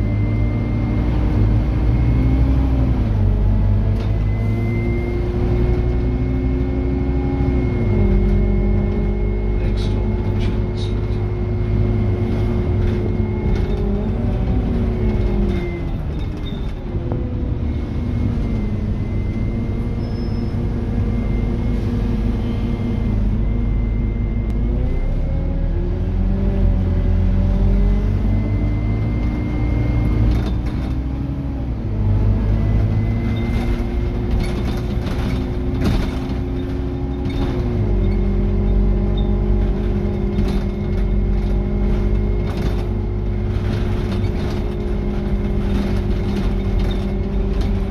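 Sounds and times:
bus engine running: 0.0s - 47.9s.

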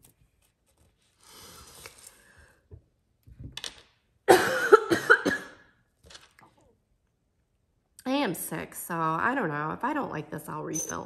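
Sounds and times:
woman coughing: 4.3s - 5.7s.

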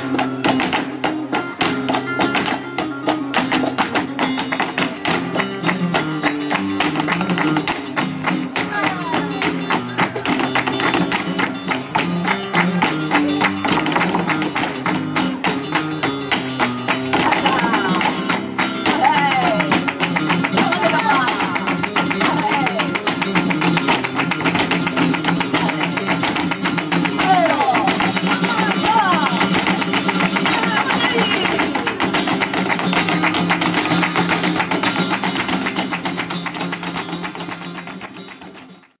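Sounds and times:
dancers' footwork strikes: 0.0s - 39.0s
guitar playing: 0.0s - 39.0s
rapid hand-clapping: 0.5s - 39.0s.

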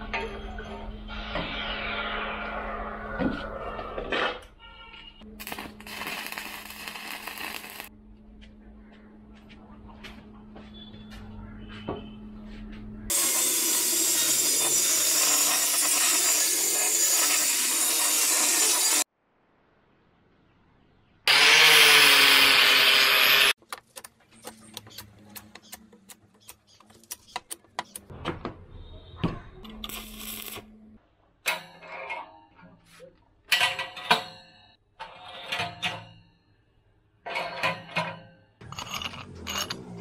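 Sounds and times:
power tool working on steel: 13.1s - 19.1s, 21.3s - 23.6s
steel bars clinking: 37.3s - 40.0s.

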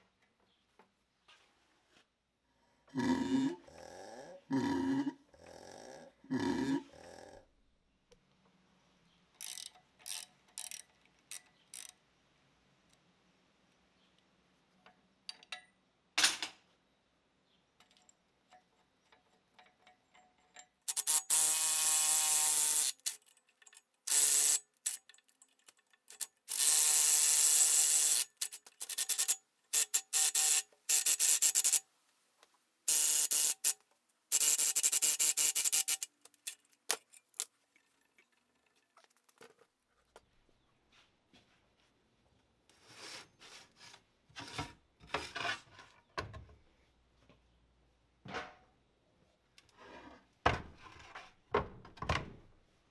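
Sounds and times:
ratchet clicking: 9.4s - 12.0s, 20.9s - 23.4s, 24.1s - 25.1s, 26.1s - 31.8s, 32.9s - 36.6s
wrenches clicking on metal: 9.4s - 12.0s, 17.8s - 31.8s, 32.9s - 37.5s.

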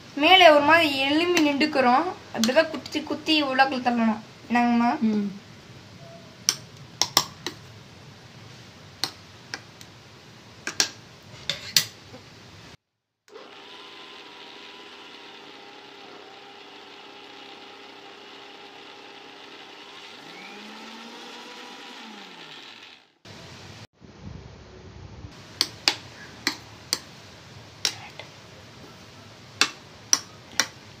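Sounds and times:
mixer grinder running: 13.3s - 23.3s.

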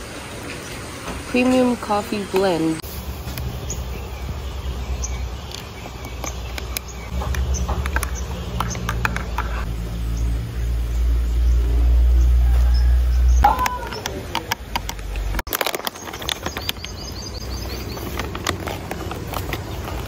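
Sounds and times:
steady low rumble: 2.7s - 13.4s.

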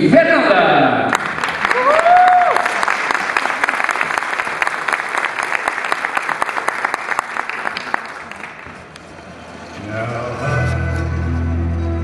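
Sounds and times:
audience applauding: 1.1s - 8.9s.

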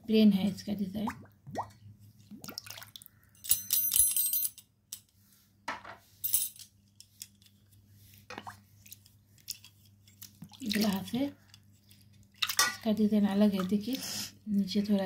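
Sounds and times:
water splashing in a bowl: 1.1s - 3.1s, 10.4s - 11.2s, 12.3s - 14.0s.

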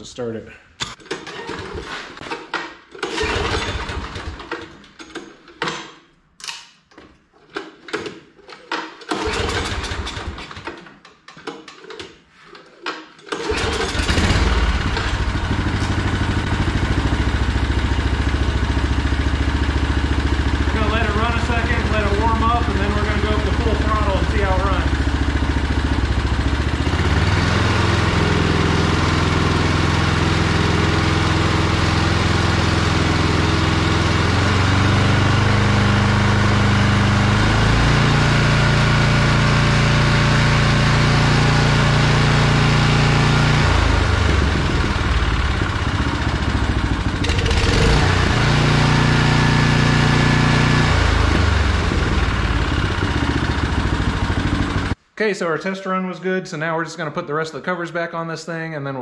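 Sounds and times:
snowblower engine revving: 3.0s - 4.6s, 9.1s - 10.6s, 13.3s - 55.0s.

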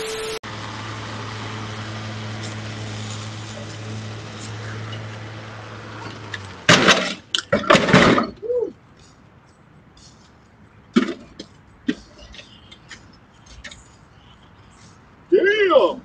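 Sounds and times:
riding mower crashing over: 6.6s - 8.4s
metal knocks and clanks: 6.7s - 8.4s
person crying out: 8.4s - 8.8s.

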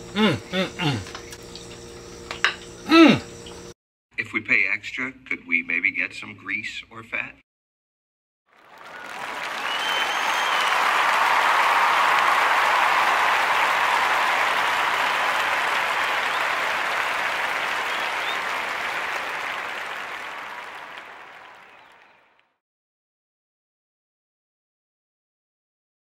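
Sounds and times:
crowd applause: 8.5s - 22.5s.

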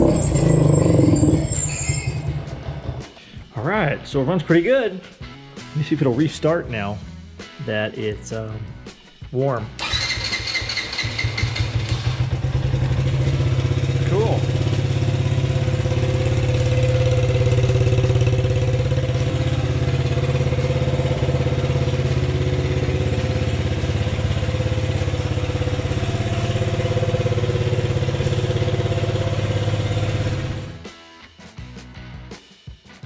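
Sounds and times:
quad engine idling: 0.0s - 3.0s, 9.8s - 30.8s.

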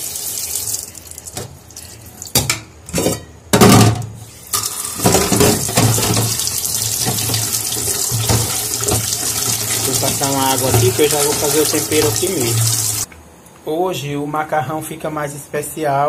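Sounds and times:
pots clattering in sink: 2.4s - 13.1s
tap running into a pan: 4.6s - 13.1s.

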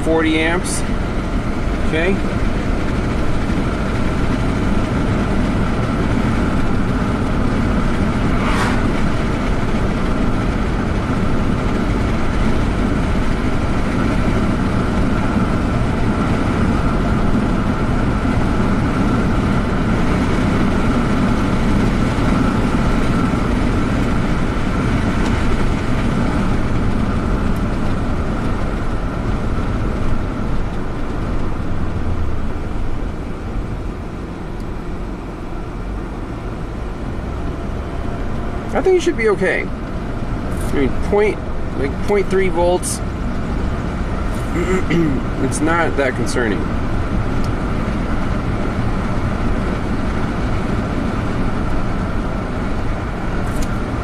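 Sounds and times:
car cabin road noise: 0.0s - 54.0s.

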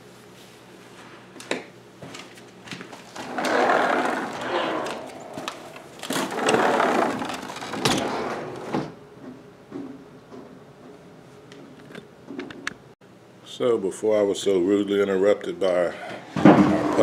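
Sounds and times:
glass door rolling on track: 3.2s - 9.0s, 16.4s - 17.0s.

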